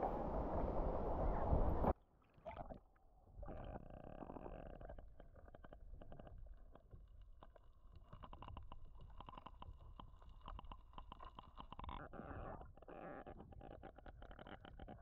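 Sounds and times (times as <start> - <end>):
low underwater rumble: 0.0 - 1.9
underwater clicks and crackles: 2.5 - 15.0.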